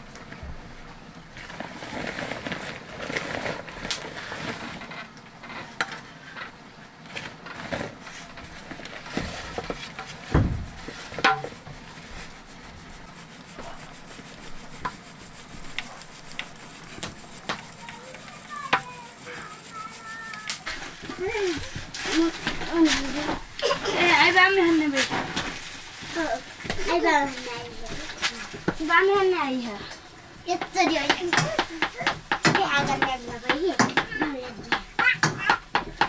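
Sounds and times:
rubbing and scraping: 0:01.3 - 0:36.0
heavy thump: 0:10.3 - 0:11.4.

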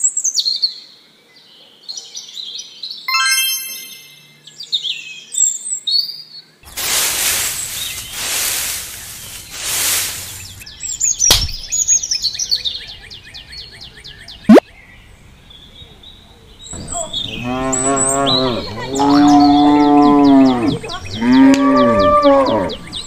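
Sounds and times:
birds chirping rapidly: 0:06.6 - 0:23.0
cow mooing: 0:17.3 - 0:22.8.

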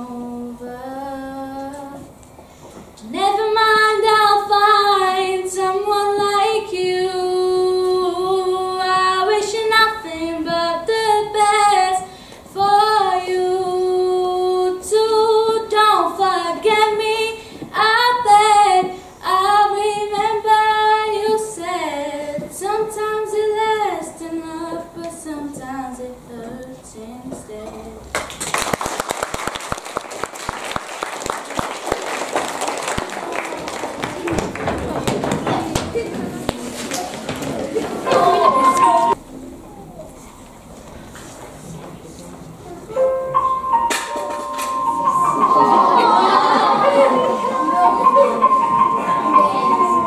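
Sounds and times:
girl singing unaccompanied: 0:00.0 - 0:02.2, 0:03.0 - 0:28.1.

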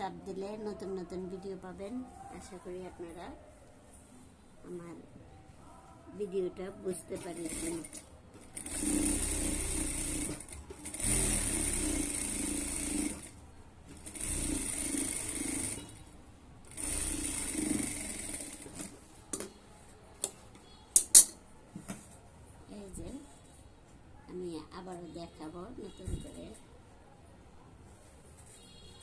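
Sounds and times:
sewing machine stitching: 0:07.0 - 0:16.0, 0:16.7 - 0:19.0.

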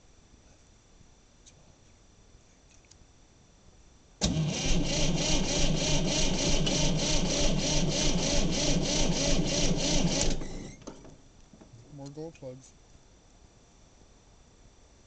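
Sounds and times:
diesel engine cranking: 0:04.2 - 0:11.0.

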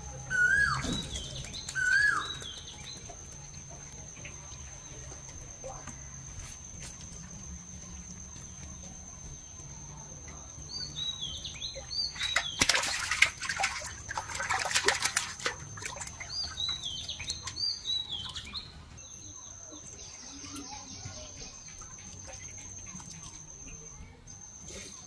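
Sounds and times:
birds chirping: 0:00.0 - 0:25.0
fish splashing in a bucket: 0:10.3 - 0:18.9.

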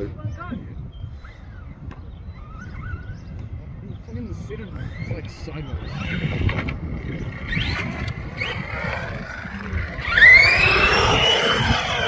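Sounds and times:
toy truck motor whining: 0:04.8 - 0:12.0.

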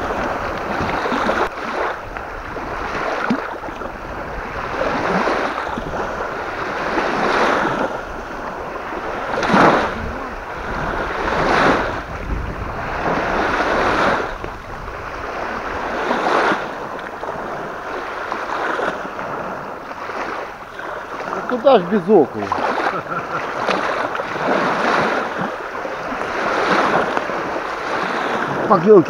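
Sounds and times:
waves splashing on shore: 0:00.0 - 0:29.0
wind rumbling on microphone: 0:00.0 - 0:29.0.

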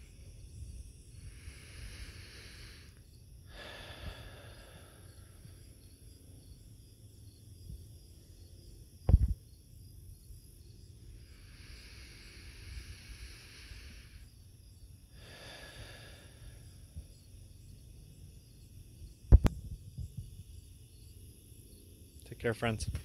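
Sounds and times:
crickets trilling: 0:00.0 - 0:23.0
sudden thump: 0:09.0 - 0:09.4
low rumble on microphone: 0:09.0 - 0:10.2, 0:18.4 - 0:20.7.

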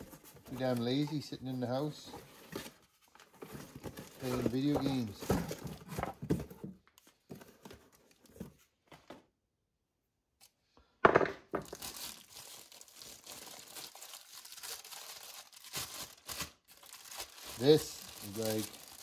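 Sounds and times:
plastic bag crinkling: 0:11.6 - 0:19.0.

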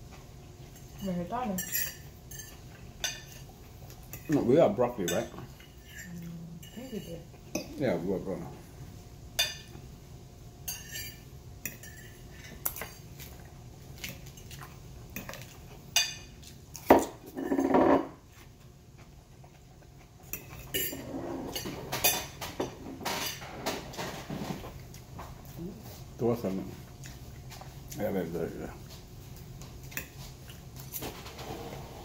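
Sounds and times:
fork scraping a plate: 0:05.0 - 0:07.2, 0:20.3 - 0:22.3.

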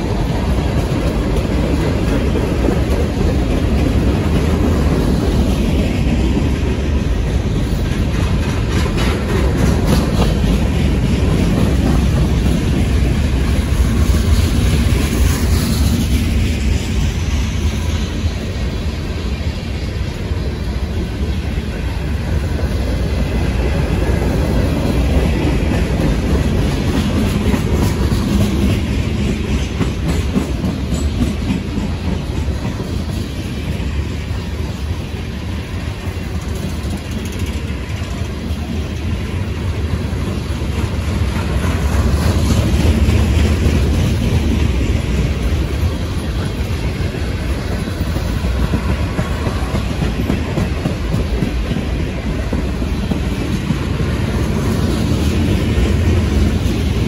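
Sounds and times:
freight train rumbling past: 0:00.0 - 0:57.0
wheels ticking over rails: 0:35.8 - 0:57.0.

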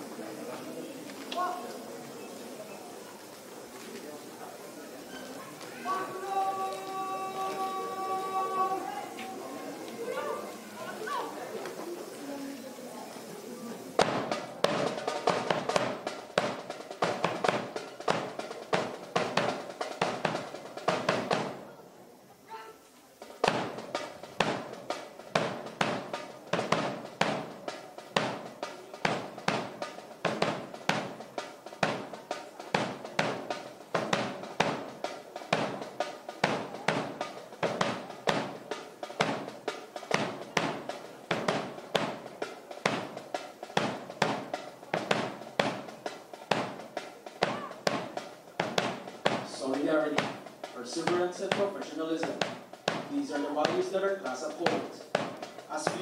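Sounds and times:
boot stomps: 0:14.0 - 0:21.6, 0:40.1 - 0:42.3, 0:47.4 - 0:49.5, 0:51.0 - 0:54.0, 0:54.7 - 0:56.0
sharp ringing strikes in marching time: 0:23.2 - 0:56.0.

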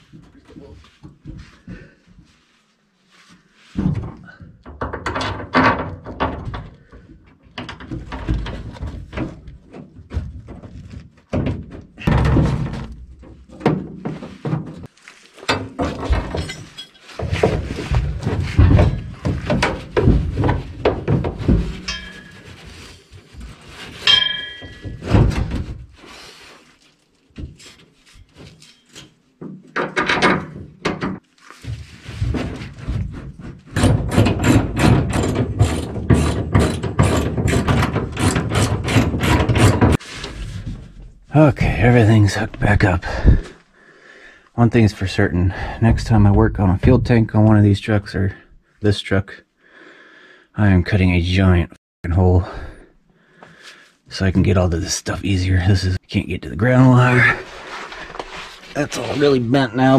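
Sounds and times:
tools knocking under truck: 0:33.7 - 0:40.0.

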